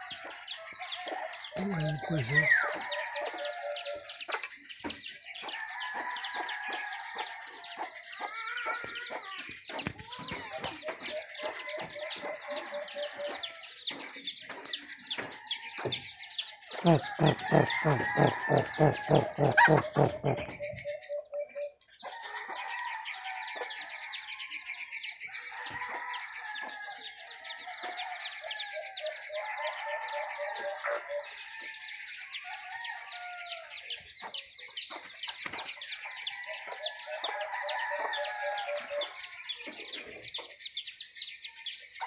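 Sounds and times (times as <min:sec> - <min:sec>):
birds chirping: 0:00.0 - 0:05.8, 0:06.7 - 0:22.2
rapid repeated lower bird notes: 0:16.8 - 0:20.7.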